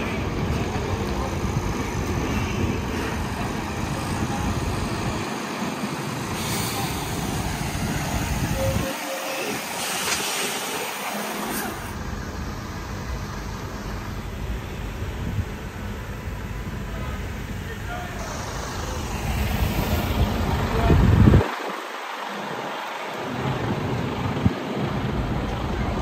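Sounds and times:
air hissing: 5.8s - 14.4s
truck diesel engine running: 9.6s - 21.4s, 22.0s - 26.0s.

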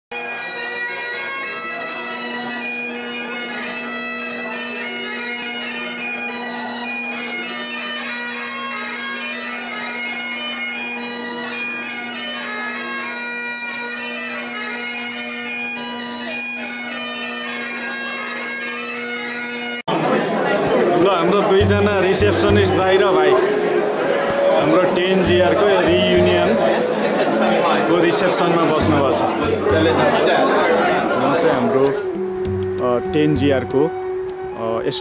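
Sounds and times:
bagpipes playing a tune: 0.1s - 19.9s, 21.2s - 35.0s.

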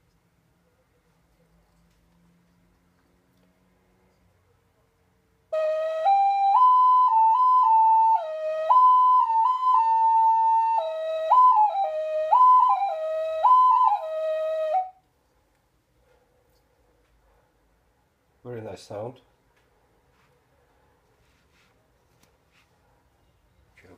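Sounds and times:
ocarina tune: 5.5s - 15.0s.

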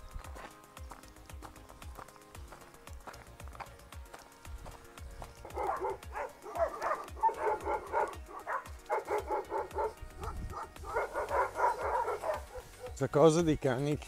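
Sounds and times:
dogs barking: 5.2s - 13.0s.

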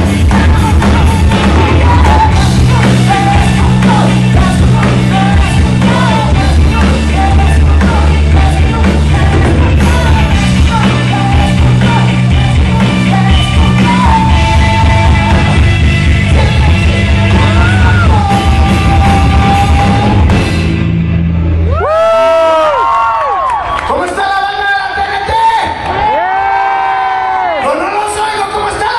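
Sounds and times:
singer yelling and singing: 0.0s - 20.5s
electric guitar: 0.0s - 23.8s
live rock band: 0.0s - 23.9s.

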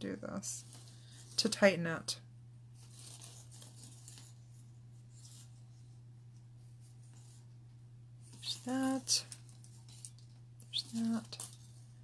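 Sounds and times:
paper strips rustling: 2.8s - 5.7s, 8.2s - 12.0s.

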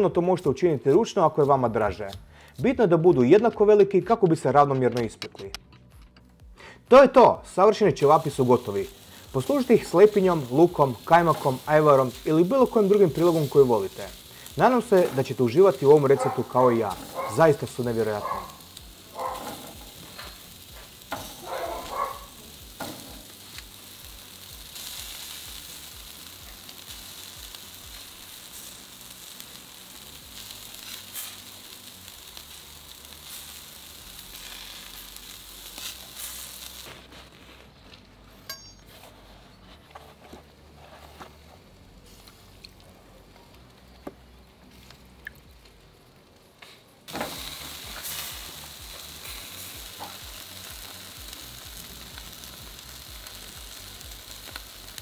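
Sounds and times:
meat sizzling on a grill: 7.6s - 38.4s, 46.6s - 55.0s.

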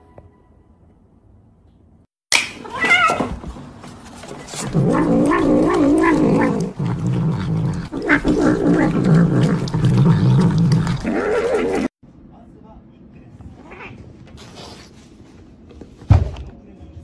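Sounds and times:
cat growling while eating: 4.5s - 11.9s.

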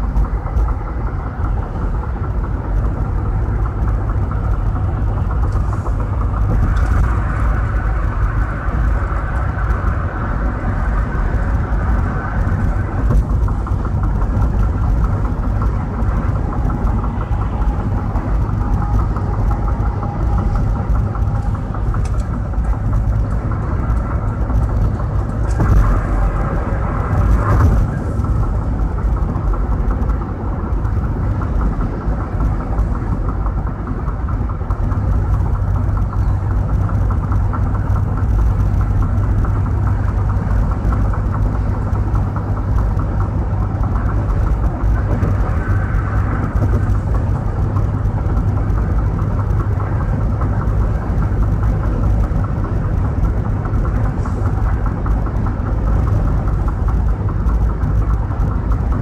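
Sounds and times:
car road and tyre noise: 0.0s - 59.0s.

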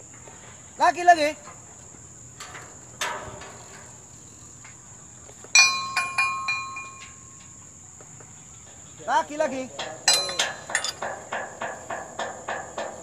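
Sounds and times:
metal frame clanking and ringing: 2.4s - 4.4s, 5.6s - 7.6s, 9.5s - 13.0s
ringing metallic clinks: 5.5s - 7.6s, 9.8s - 12.9s.

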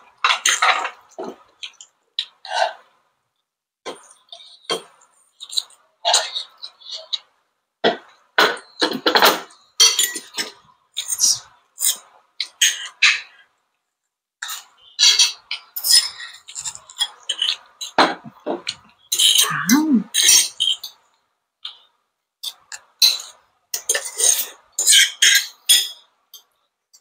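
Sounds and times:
cutlery clinking on plate: 7.9s - 13.3s, 14.4s - 19.4s, 22.4s - 26.5s.

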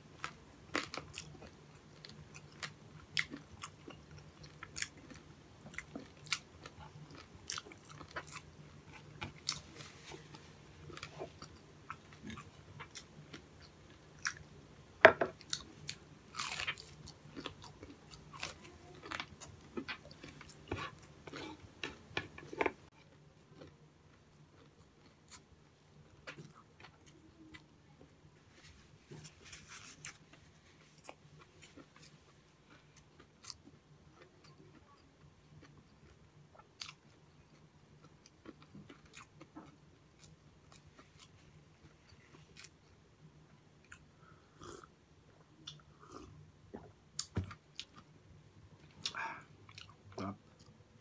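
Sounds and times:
person chewing quietly: 0.1s - 14.6s, 15.3s - 51.0s
person crunching fried food: 15.4s - 23.7s.

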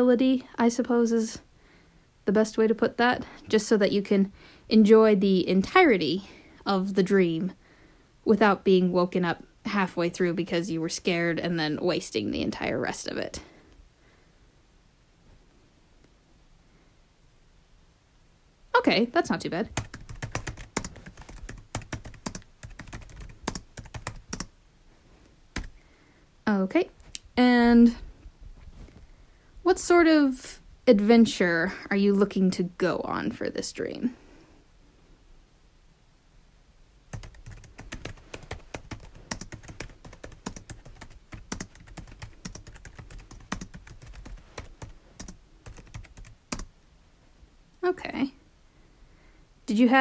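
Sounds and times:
keyboard typing: 19.7s - 24.5s, 25.6s - 25.8s, 37.1s - 46.7s.

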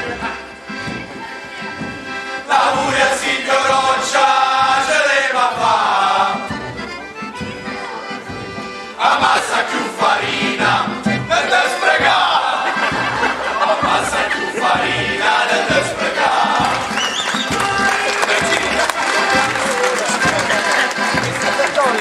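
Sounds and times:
accordion: 0.0s - 22.0s
men singing folk song in chorus: 2.3s - 6.9s, 8.7s - 21.2s.

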